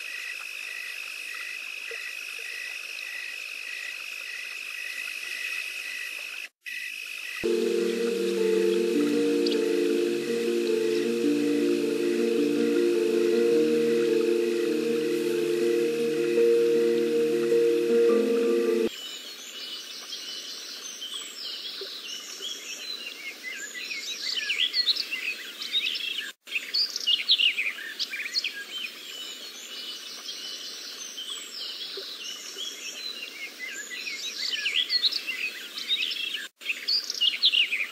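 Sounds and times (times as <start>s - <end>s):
faint steady hiss: 7.4s - 18.9s.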